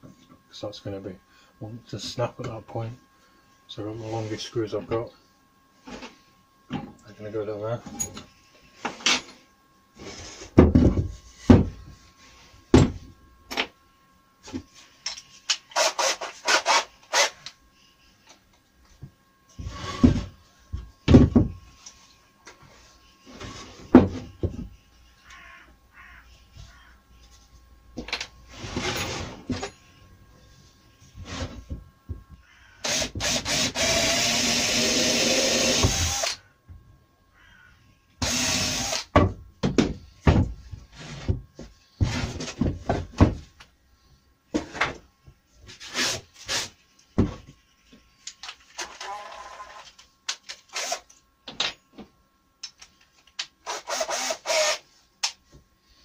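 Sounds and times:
cordless drill boring into wood: 32.8s - 36.4s, 38.2s - 39.1s, 53.7s - 54.8s.

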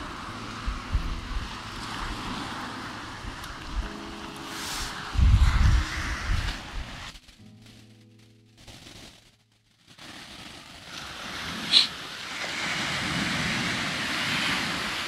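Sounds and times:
waves breaking on shore: 0.0s - 7.1s, 9.9s - 15.0s.

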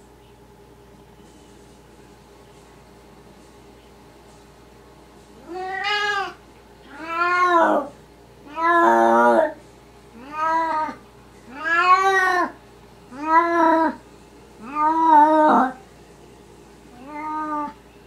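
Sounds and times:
cat meowing: 5.4s - 7.9s, 8.5s - 9.6s, 10.2s - 14.0s, 14.6s - 15.8s, 16.9s - 17.8s.

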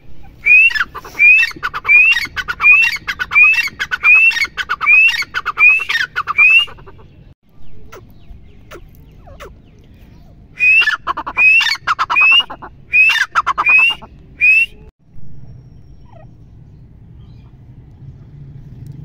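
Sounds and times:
francolin calling: 0.3s - 7.2s, 10.6s - 14.9s.

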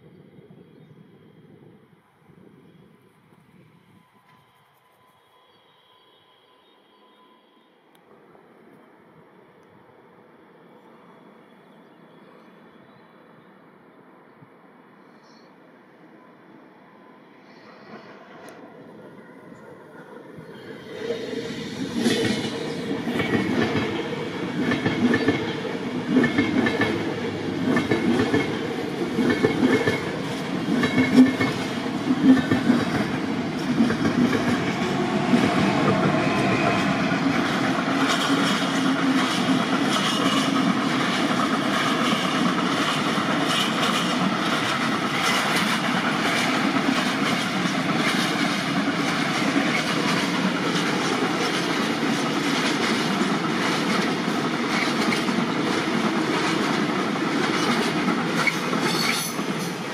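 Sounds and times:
train wheels clattering: 20.6s - 59.9s.

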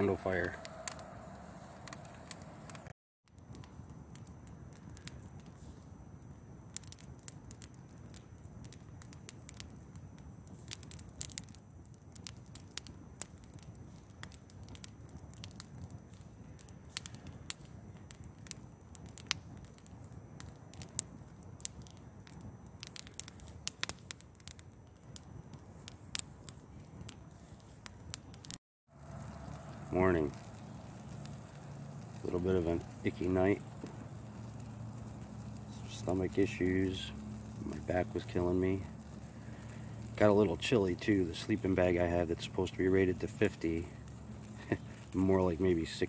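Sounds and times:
low steady rumble: 0.0s - 2.9s, 28.9s - 46.0s
wood fire crackling: 0.0s - 46.0s.

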